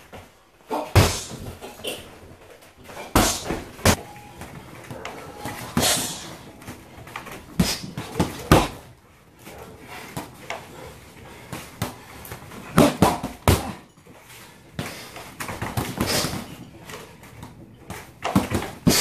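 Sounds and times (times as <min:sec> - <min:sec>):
punches and kicks thudding on dummy: 0:00.8 - 0:01.6, 0:03.0 - 0:04.0, 0:07.5 - 0:08.9, 0:12.7 - 0:13.8.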